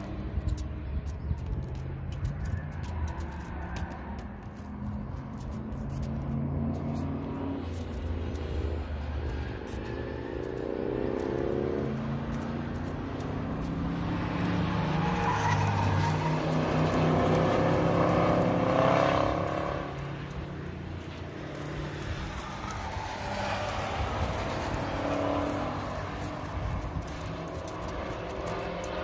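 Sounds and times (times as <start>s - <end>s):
race car engines accelerating: 6.0s - 29.0s.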